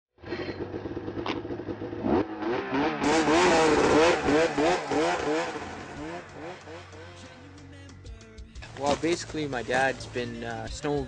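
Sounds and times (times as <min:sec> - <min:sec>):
snowmobile engine revving: 0:00.4 - 0:07.6.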